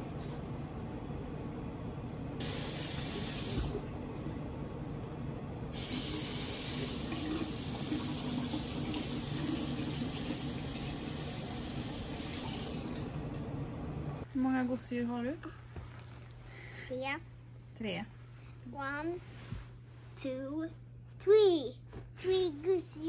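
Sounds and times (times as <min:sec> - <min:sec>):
tap water streaming into basin: 0:05.8 - 0:13.4.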